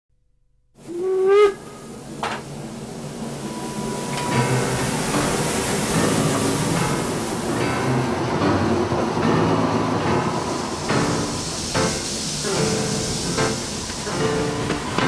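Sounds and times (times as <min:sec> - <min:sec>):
steam locomotive whistle: 0:00.8 - 0:02.1, 0:03.3 - 0:07.4
burst of steam: 0:00.8 - 0:08.5, 0:09.2 - 0:15.0
steam hissing: 0:00.8 - 0:15.0.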